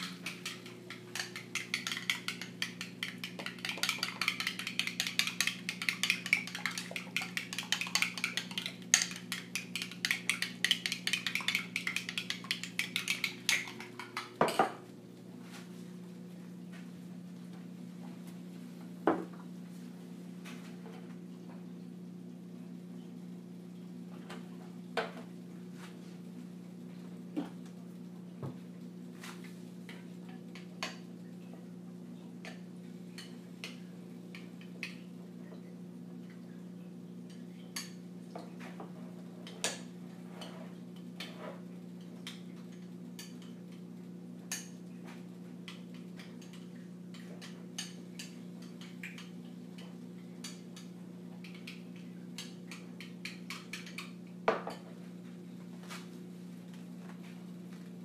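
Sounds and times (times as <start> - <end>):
pots and cutlery clinking: 0.0 - 14.8.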